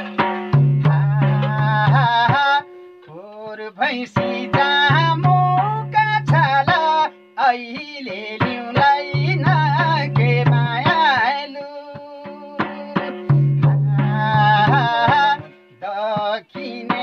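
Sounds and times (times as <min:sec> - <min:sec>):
hand drum booming strokes: 0:00.0 - 0:02.5, 0:12.6 - 0:15.4
man singing in high voice: 0:00.0 - 0:17.0.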